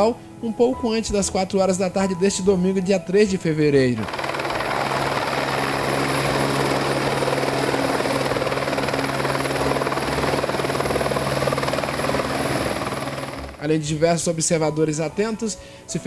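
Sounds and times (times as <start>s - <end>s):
engine hum: 4.0s - 13.6s
helicopter rotor thrum: 4.0s - 13.6s.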